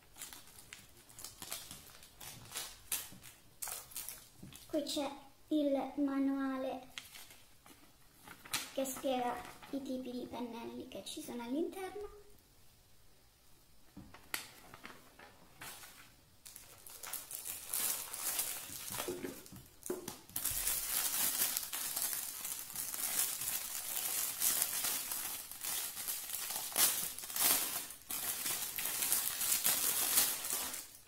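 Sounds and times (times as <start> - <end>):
plastic bag crinkling: 0.0 - 4.8, 6.9 - 9.8, 14.5 - 31.0.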